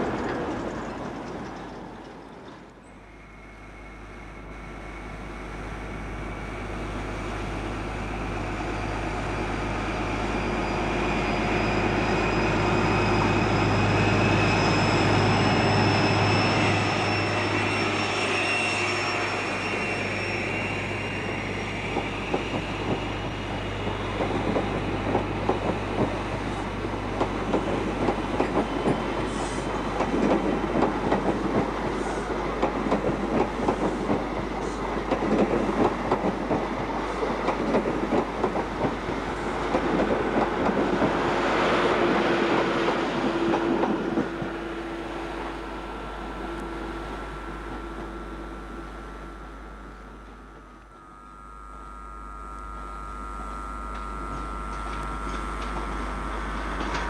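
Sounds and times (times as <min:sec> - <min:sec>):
train hum with faint whine: 0:00.0 - 0:57.0.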